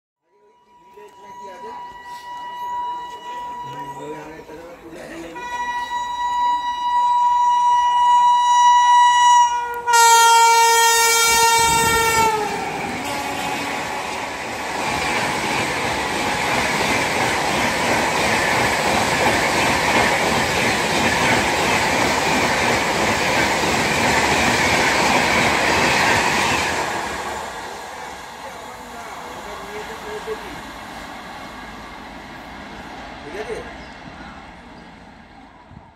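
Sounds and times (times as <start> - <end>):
train horn long blast: 0.5 - 4.0, 5.3 - 14.5
train wheels clacking on rails: 11.7 - 34.2.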